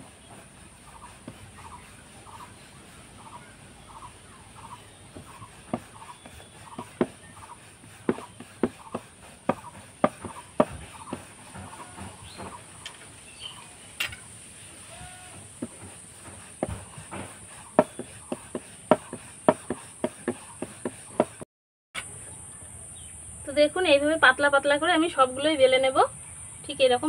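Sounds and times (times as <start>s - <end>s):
rolling pin rolling dough: 0.0s - 21.4s
rolling pin clacking on board: 5.1s - 12.7s, 15.3s - 21.4s.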